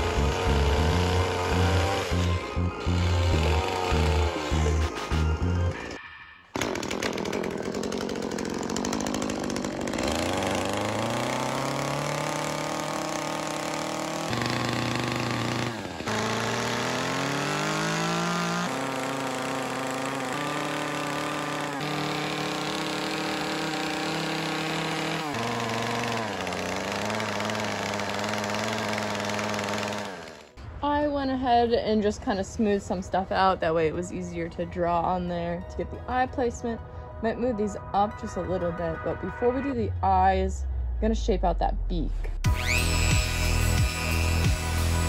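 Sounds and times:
chainsaw cutting wood: 0:00.0 - 0:06.0, 0:06.6 - 0:30.6, 0:42.4 - 0:45.0.

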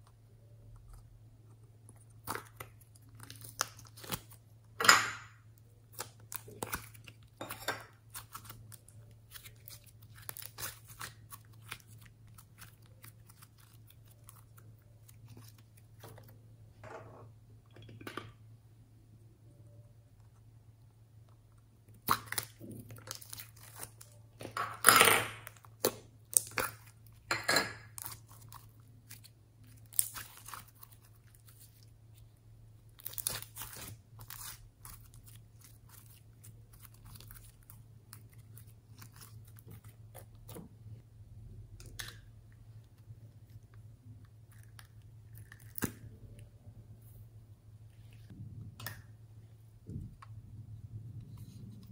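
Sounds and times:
low steady hum: 0:00.0 - 0:51.9.

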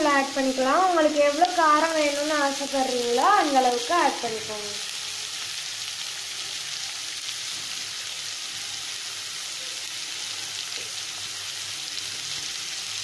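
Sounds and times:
onions sizzling in oil: 0:00.0 - 0:13.0.

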